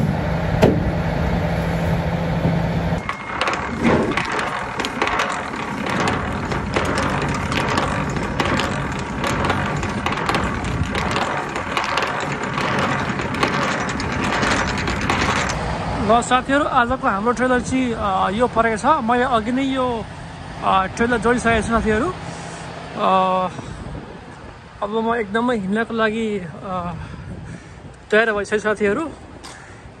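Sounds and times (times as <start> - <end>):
crunching and scraping: 3.0 - 15.6.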